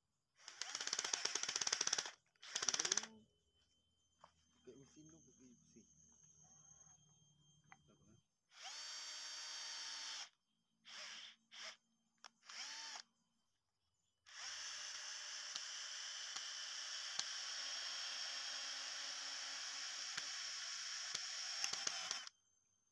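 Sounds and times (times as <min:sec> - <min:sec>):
electric drill boring through bamboo: 0:00.4 - 0:03.1, 0:08.5 - 0:10.3, 0:10.9 - 0:13.0, 0:14.3 - 0:22.3.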